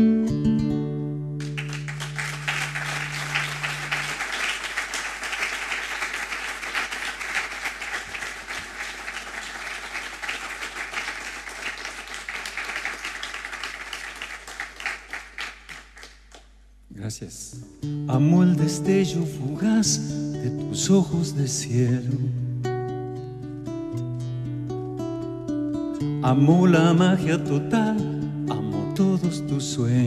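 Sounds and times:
audience applause: 1.4 - 16.4.

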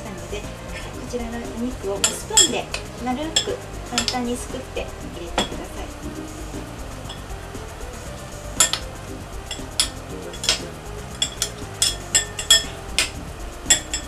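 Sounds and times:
metal spoons clinking on glass bowl: 2.0 - 4.2.

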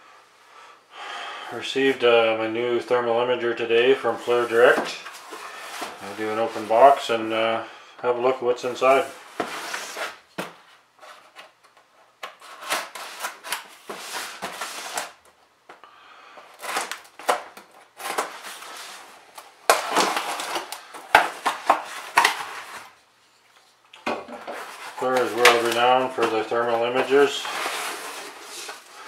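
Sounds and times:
cardboard flaps scraping: 8.9 - 11.5, 12.3 - 15.2, 16.6 - 23.0, 24.3 - 29.0
knife slitting packing tape: 12.3 - 15.2, 16.5 - 18.8.

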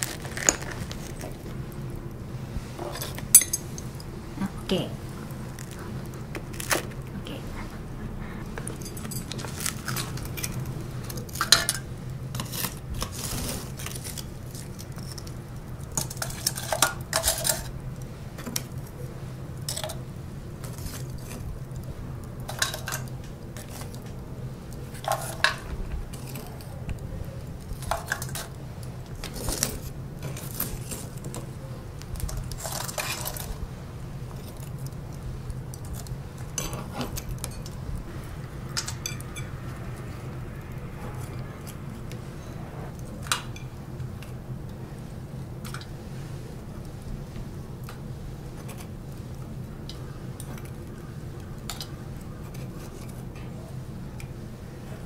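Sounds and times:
metal tongs moving charcoal: 0.0 - 55.0
steady low hum: 0.0 - 55.0
spoon scraping porcelain bowl: 8.4 - 15.3.

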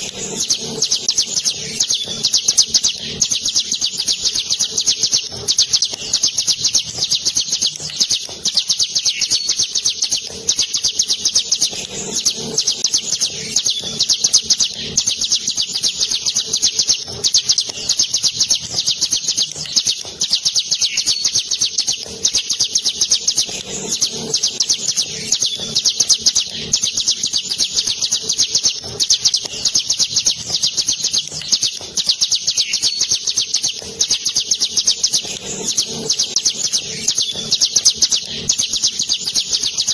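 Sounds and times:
bird singing rapid trill: 0.0 - 39.9.

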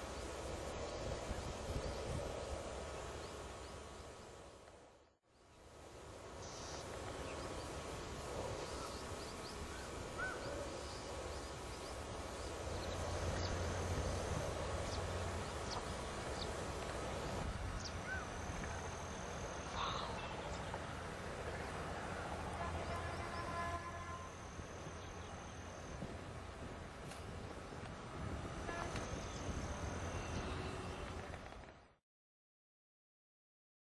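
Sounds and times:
wind rumble on microphone: 0.0 - 3.4, 6.8 - 19.4, 24.7 - 31.9.

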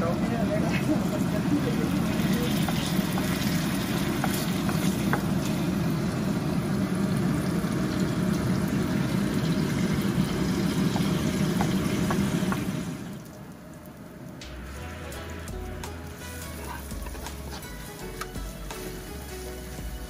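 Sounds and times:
meat sizzling in a pan: 1.0 - 13.2, 15.2 - 20.0.

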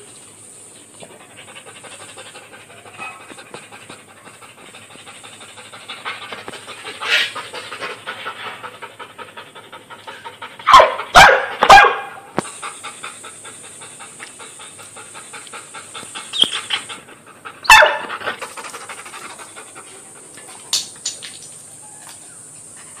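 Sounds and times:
dog panting rapidly: 1.0 - 11.2, 12.4 - 20.6
dog barking loudly: 2.9 - 3.3, 10.6 - 12.3, 17.6 - 18.2.

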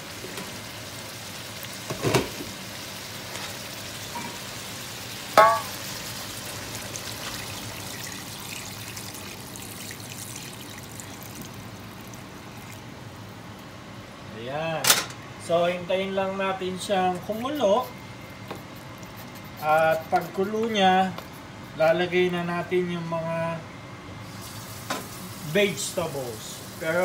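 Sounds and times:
broth pouring and sizzling in wok: 0.0 - 12.8, 24.3 - 25.4
metal pot clanking against wok: 5.4 - 5.8.

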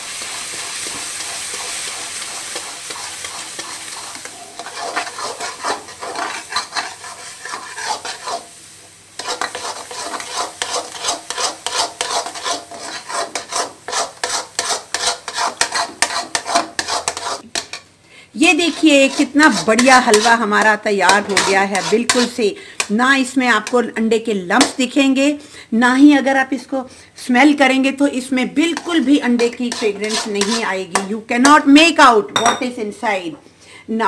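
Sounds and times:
batter sizzling in hot fat: 0.0 - 24.0, 28.6 - 31.1
metal spoon scraping pan: 0.2 - 8.6, 9.2 - 23.0, 28.7 - 31.6.

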